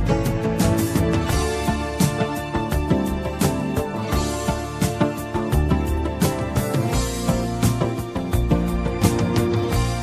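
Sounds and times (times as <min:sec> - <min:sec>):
instrumental music with percussive hits: 0:00.0 - 0:10.0.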